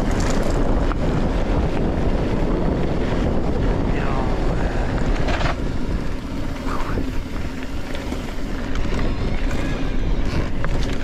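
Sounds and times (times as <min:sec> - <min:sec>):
bicycle low rumble: 0:00.0 - 0:11.0
wind buffeting microphone: 0:00.0 - 0:11.0.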